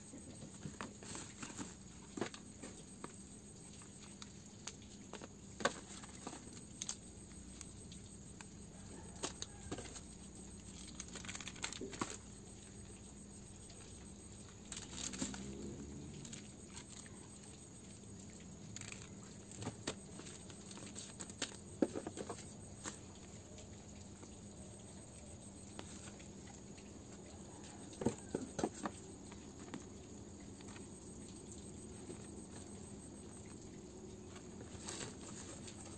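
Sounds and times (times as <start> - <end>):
faint steady hum: 0.0 - 35.9
packaging rustle: 10.6 - 12.4, 14.7 - 17.1
plastic packaging clicks and crinkles: 10.6 - 12.4, 14.7 - 15.6.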